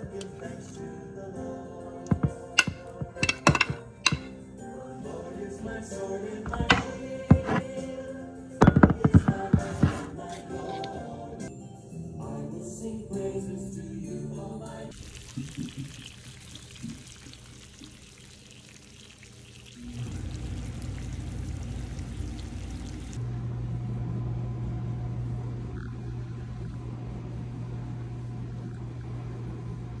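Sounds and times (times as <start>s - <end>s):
low even hum: 19.6s - 30.0s.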